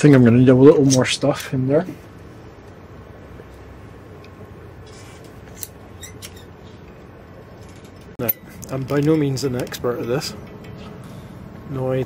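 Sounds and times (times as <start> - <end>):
low background hum: 0.0 - 12.0
caulking gun clicks and squeaks: 4.9 - 6.8.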